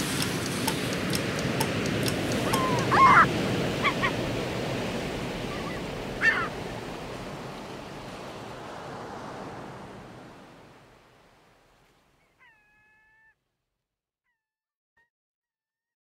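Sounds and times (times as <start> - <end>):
broad rushing noise: 0.0 - 11.2.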